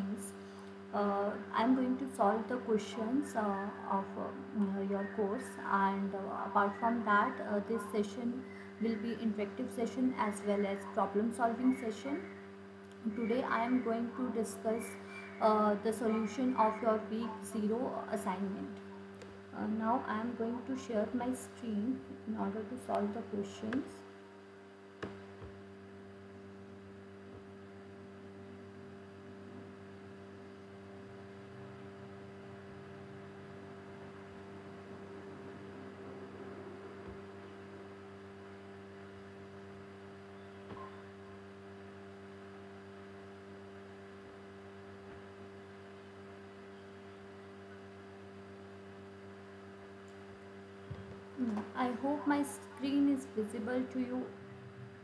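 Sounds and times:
electrical mains hum: 0.0s - 55.0s.

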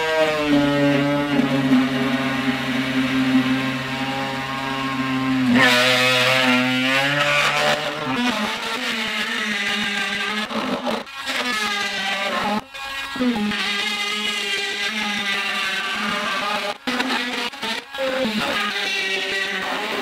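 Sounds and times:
rotary tool cutting plastic: 0.0s - 20.0s.

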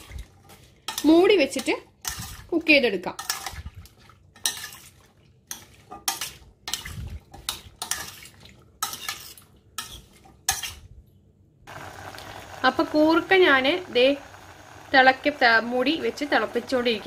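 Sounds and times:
spoon scraping steel pot: 4.4s - 10.8s.

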